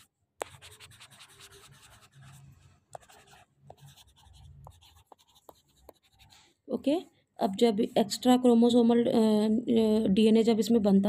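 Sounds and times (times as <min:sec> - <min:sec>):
stylus scratching on tablet: 0:00.0 - 0:06.5.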